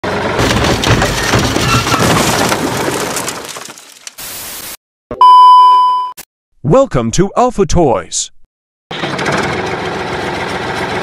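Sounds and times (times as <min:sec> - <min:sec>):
dense crackling crunching noise: 0:00.4 - 0:04.4
steady test-pattern beep: 0:05.1 - 0:06.2.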